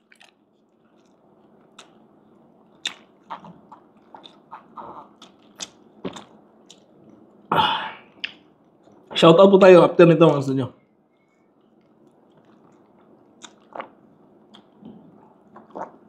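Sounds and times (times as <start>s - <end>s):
mouth clicks and crackles: 0.0s - 7.4s, 8.1s - 9.1s, 11.5s - 16.0s
chewing and biting food: 15.5s - 16.0s.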